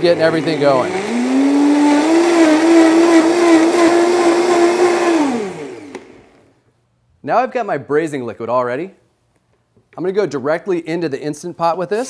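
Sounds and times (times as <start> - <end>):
blender motor running: 0.0 - 6.5.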